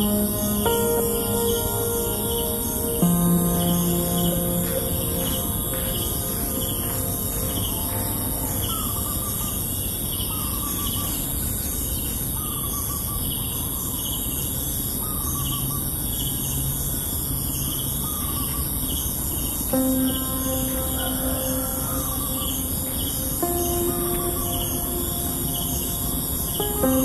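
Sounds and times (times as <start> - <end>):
birds chirping: 0.0 - 14.2, 19.7 - 27.0.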